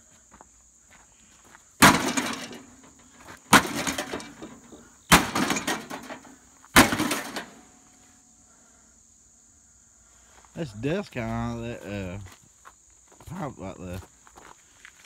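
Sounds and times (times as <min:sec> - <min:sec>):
insects droning: 0:00.0 - 0:15.0
sheet metal clattering: 0:01.8 - 0:07.8
sledgehammer striking metal grill: 0:01.8 - 0:07.8.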